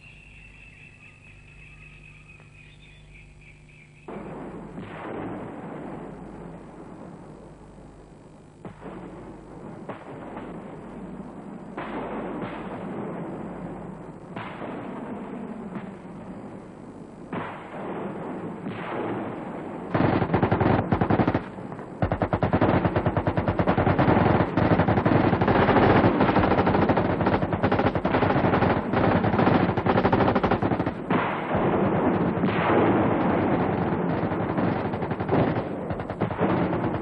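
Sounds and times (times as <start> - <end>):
automatic gunfire bursts: 17.3 - 37.0.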